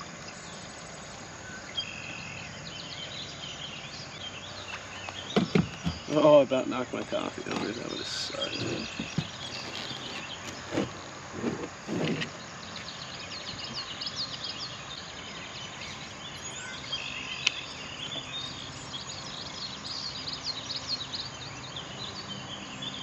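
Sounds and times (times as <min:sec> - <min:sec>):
birds chirping: 0:00.0 - 0:23.0
outdoor background noise: 0:00.0 - 0:23.0
low muffled thuds: 0:05.1 - 0:06.2, 0:06.9 - 0:12.4.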